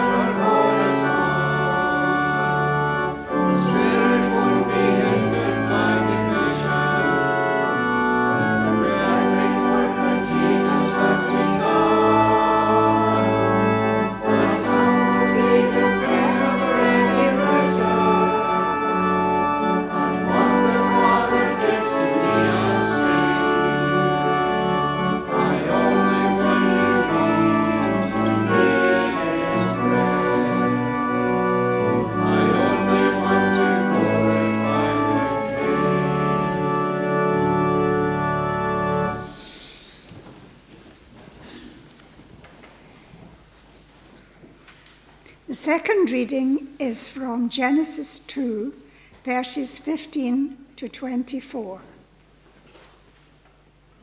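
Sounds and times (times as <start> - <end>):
congregation singing faintly: 0.0 - 39.6
organ playing sustained chords: 0.0 - 39.9.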